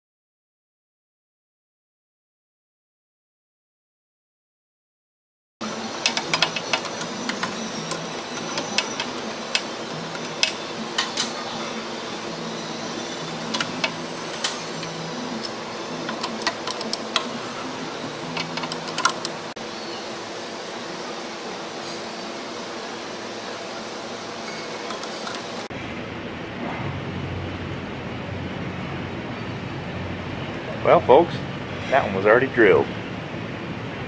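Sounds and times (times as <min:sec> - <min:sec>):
fan-like shop hum: 0:05.6 - 0:34.0
ratcheting wrench clicking: 0:18.3 - 0:19.4.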